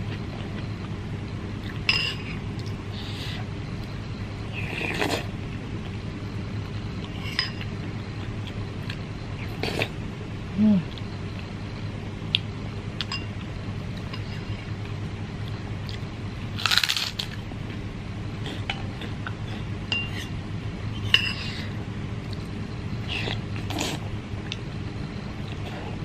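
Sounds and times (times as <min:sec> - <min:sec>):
slurping noodles: 0:23.1 - 0:24.0.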